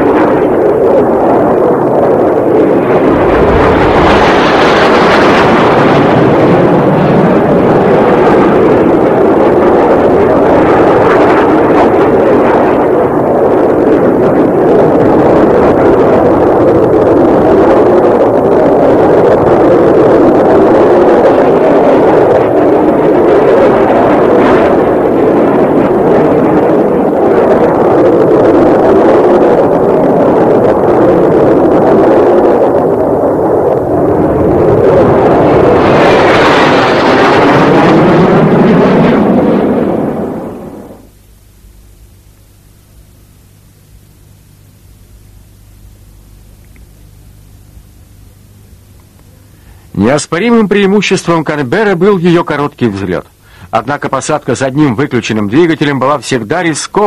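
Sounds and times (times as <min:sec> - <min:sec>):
jet aircraft passing: 0:00.0 - 0:18.3, 0:32.6 - 0:41.1.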